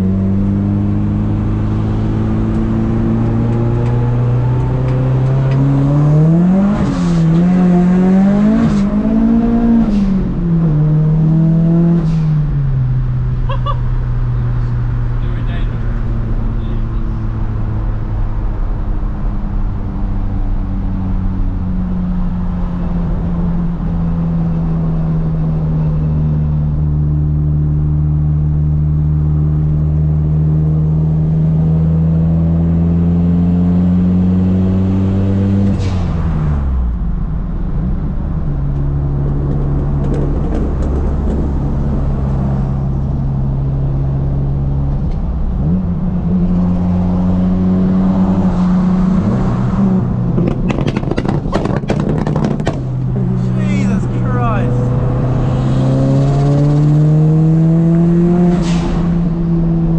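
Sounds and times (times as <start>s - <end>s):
car engine revving from cabin: 45.5s - 59.9s.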